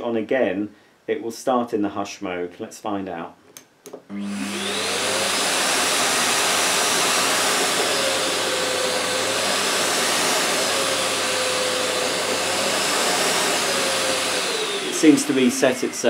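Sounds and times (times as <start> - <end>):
vacuum cleaner motor whining: 4.1 - 16.0.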